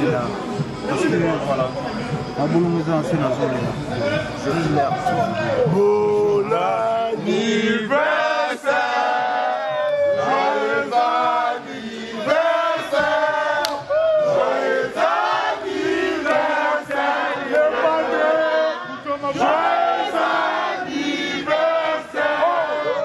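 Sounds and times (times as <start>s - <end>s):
crowd of men chanting: 4.6s - 23.0s.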